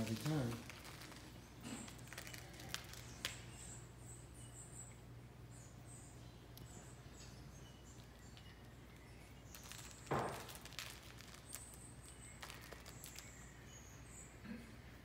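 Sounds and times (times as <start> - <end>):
cats rustling plush toys: 0.0 - 3.7, 8.1 - 13.7
low steady hum: 0.0 - 15.0
thump on tile floor: 10.1 - 10.6.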